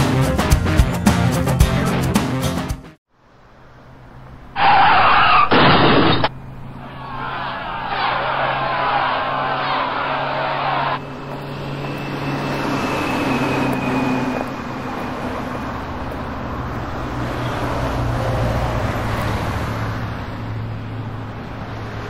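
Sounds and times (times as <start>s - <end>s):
traffic rushing: 3.2s - 22.0s
faint high whine: 9.7s - 16.2s.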